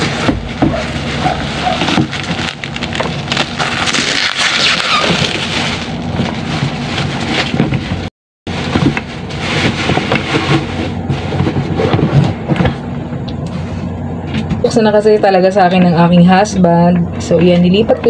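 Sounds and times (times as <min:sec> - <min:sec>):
plastic wrapping crinkling: 0:00.0 - 0:11.4.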